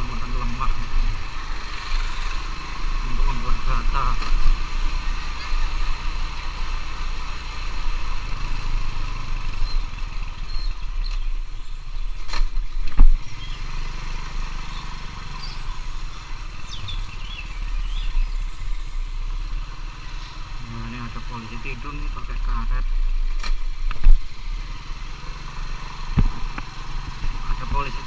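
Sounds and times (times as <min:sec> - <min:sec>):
scooter engine running: 0:13.1 - 0:18.6, 0:24.2 - 0:28.0.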